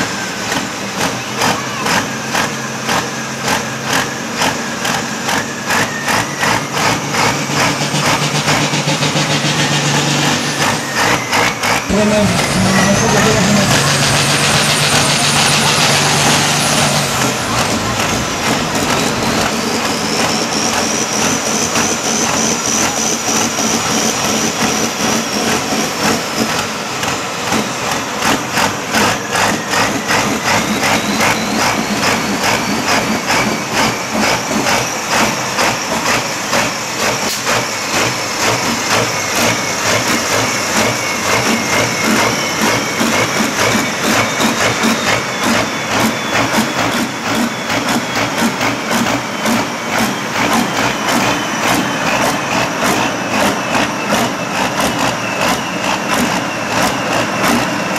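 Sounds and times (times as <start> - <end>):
diesel tractor engines idling: 0.0 - 57.9
high wavering whine: 5.6 - 37.1.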